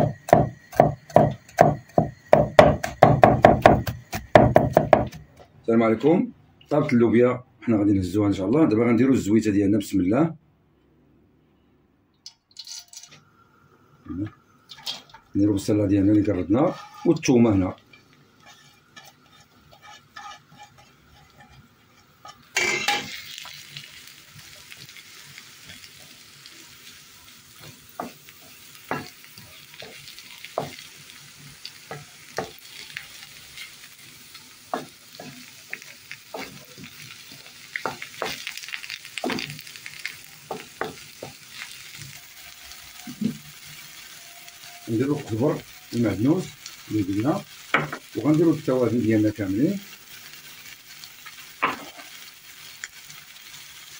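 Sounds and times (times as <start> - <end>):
onion sizzling in oil: 0.0 - 5.4, 13.9 - 53.9
wooden spoon scraping a pan: 16.2 - 23.6, 34.7 - 48.4, 51.3 - 52.3.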